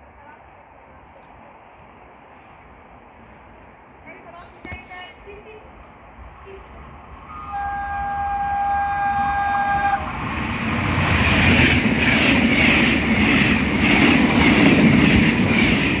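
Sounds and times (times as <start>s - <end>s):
train horn blast: 7.3s - 10.1s
train wheels clattering: 10.6s - 16.0s.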